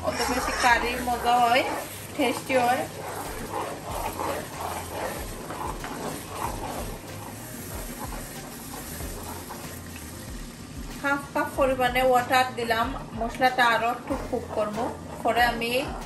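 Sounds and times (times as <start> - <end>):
metal spoon stirring: 0.0 - 10.3, 11.8 - 16.0
food frying in pan: 0.0 - 16.0.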